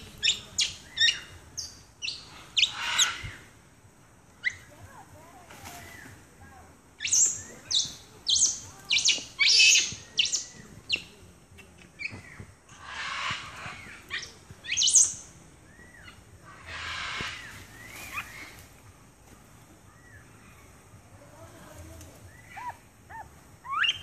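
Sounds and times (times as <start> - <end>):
monkeys squeaking and chirping: 7.0 - 11.0, 22.4 - 24.0.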